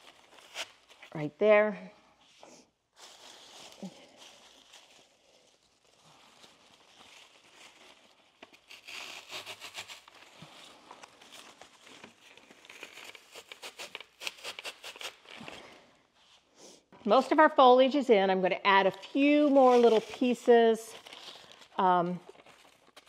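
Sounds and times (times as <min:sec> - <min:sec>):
leaves rustling and crinkling: 0:03.0 - 0:12.0.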